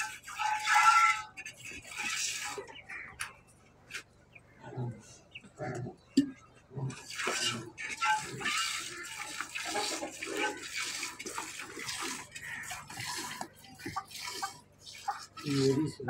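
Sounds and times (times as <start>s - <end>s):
milk squirting into steel pail: 0.0s - 3.3s, 6.9s - 16.0s.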